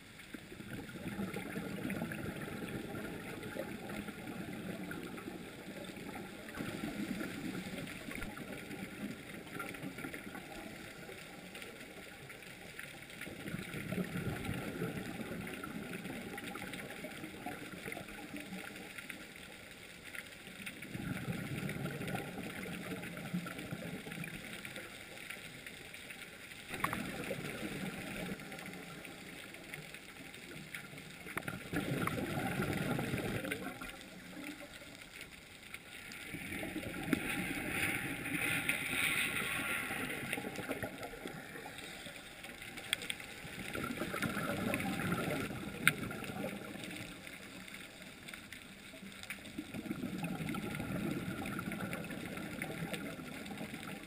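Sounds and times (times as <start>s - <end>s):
diver's regulator bubbling exhalations: 31.3s - 34.7s, 36.2s - 47.2s, 49.6s - 54.0s.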